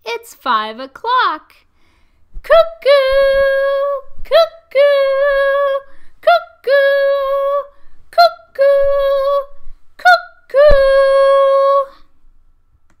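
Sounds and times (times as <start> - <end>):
woman singing cuckoo calls: 2.5 - 12.0.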